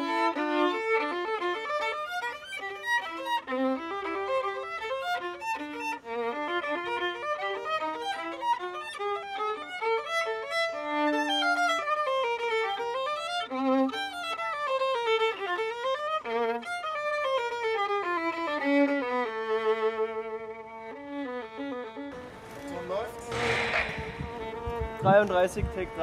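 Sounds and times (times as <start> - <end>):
solo violin fast melody: 0.0 - 26.0.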